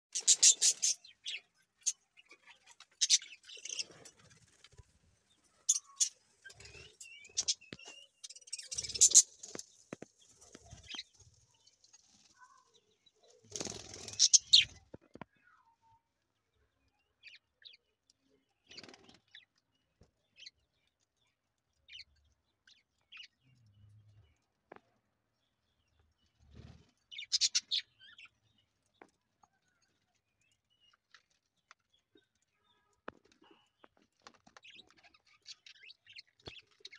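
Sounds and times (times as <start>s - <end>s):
budgerigars chirping: 0.2s - 1.4s, 27.2s - 28.2s.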